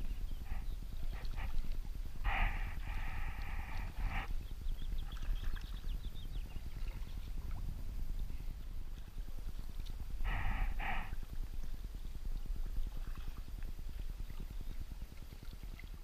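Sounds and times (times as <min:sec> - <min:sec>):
wind rumble on microphone: 0:00.0 - 0:16.0
animal call: 0:00.3 - 0:04.3, 0:10.2 - 0:11.2.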